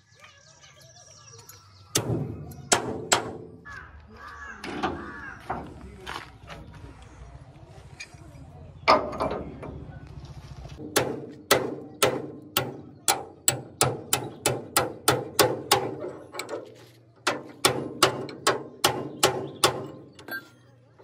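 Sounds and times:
hammer striking metal: 10.8 - 16.5.

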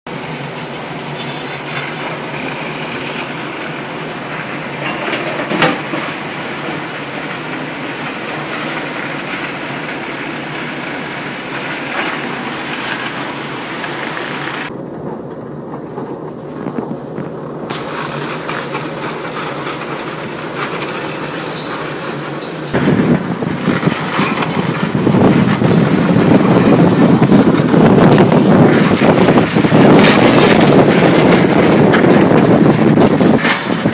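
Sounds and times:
mechanical rumble and rattle: 0.1 - 33.9.

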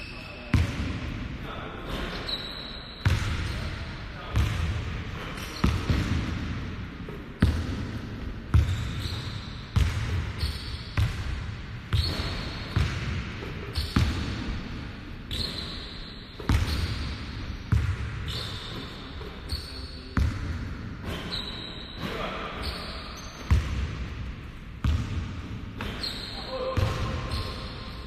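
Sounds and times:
basketballs bouncing on wooden floor: 4.3 - 14.5, 16.4 - 19.4, 20.2 - 21.3, 23.3 - 24.1, 24.8 - 27.8.

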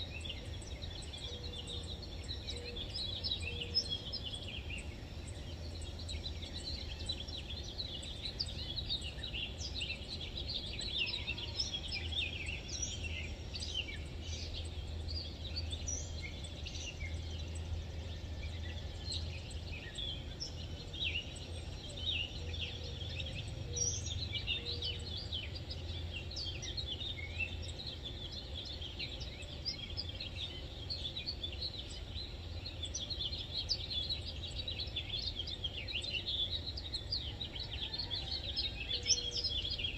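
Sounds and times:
birds chirping and twittering: 0.0 - 39.9.

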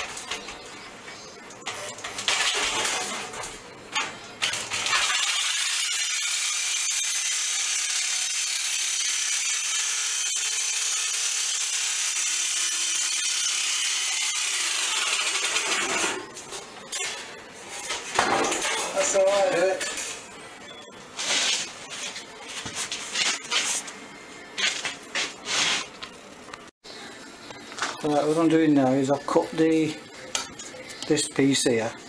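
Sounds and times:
jigsaw cutting steel: 4.4 - 16.2.

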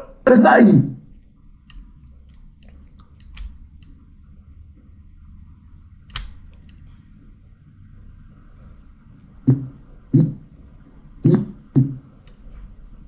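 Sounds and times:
snatches of recorded male voice: 9.5 - 10.4, 11.3 - 12.0.

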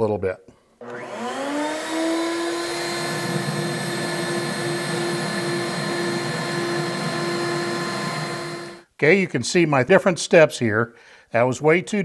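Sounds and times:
board being cut by router bit: 0.8 - 8.8
router motor whining: 0.8 - 8.8.

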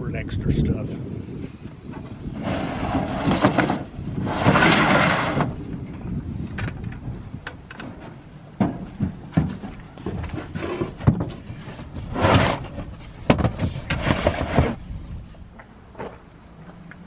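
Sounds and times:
plastic tote scraping on truck bed: 1.9 - 5.6, 7.8 - 15.0.

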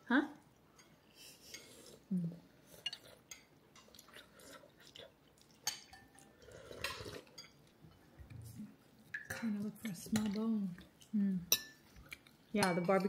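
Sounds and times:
cutlery clinking on ceramic: 5.6 - 7.6, 11.5 - 11.8, 12.6 - 13.0.

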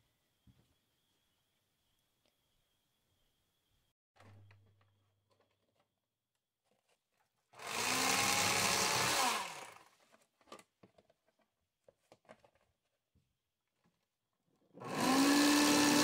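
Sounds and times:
electric fillet knife running: 7.6 - 9.8, 14.8 - 16.0.

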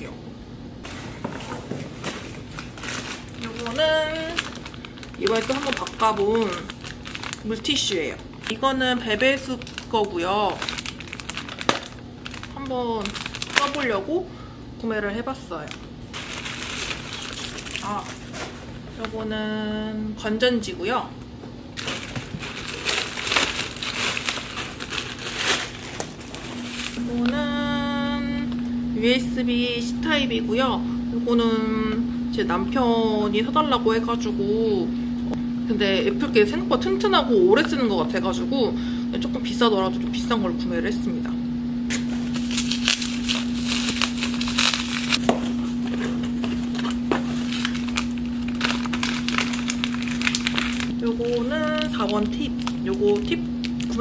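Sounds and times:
steady low hum: 0.0 - 54.0
plastic bag crinkling: 0.9 - 14.1, 15.5 - 19.0, 21.8 - 27.1, 41.9 - 54.0.

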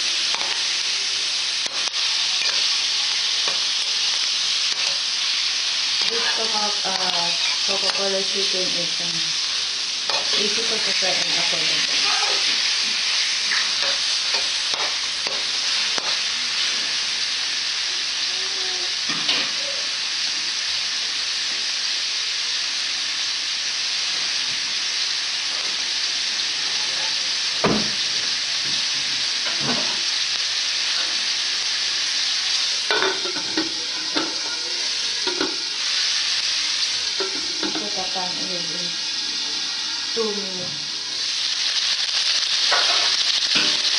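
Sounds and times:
oil sizzling in a wok: 0.0 - 43.9.

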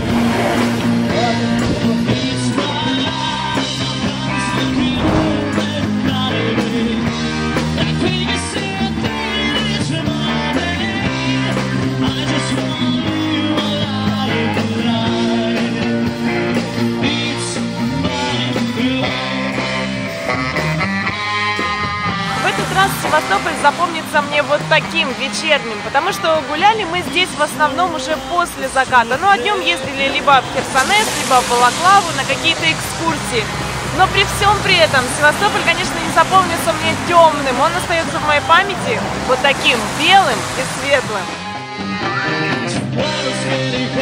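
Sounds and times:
rock band playing: 2.4 - 8.6.

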